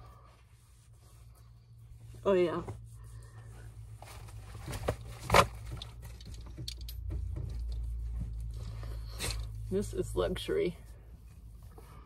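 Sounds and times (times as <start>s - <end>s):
washcloth rubbing wet face: 0.0s - 4.0s
steady low hum: 0.0s - 12.0s.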